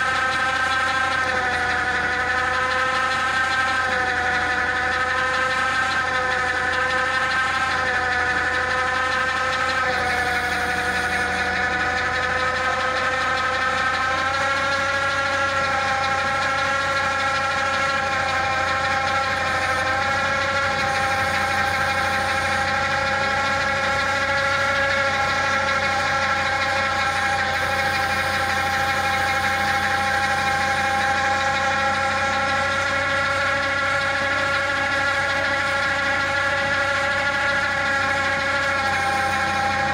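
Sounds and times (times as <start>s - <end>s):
hydraulic drive whine: 0.0s - 39.9s
tractor engine under load: 0.0s - 39.9s.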